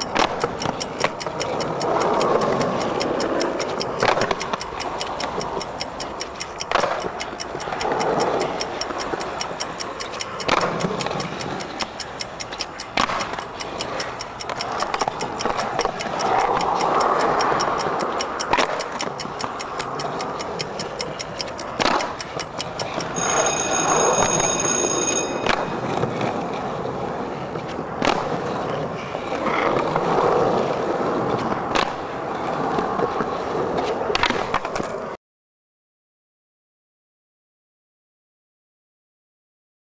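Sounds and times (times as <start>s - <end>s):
beeping alarm: 0.0s - 15.5s, 22.4s - 26.2s
clock ticking: 0.0s - 26.4s
skateboard wheels rolling on concrete: 0.1s - 9.3s, 22.3s - 35.2s.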